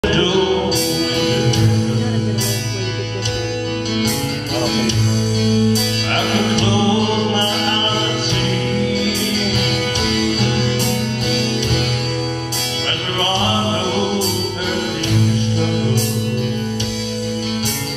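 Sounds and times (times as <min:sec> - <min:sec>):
acoustic guitar chords: 0:00.0 - 0:17.9.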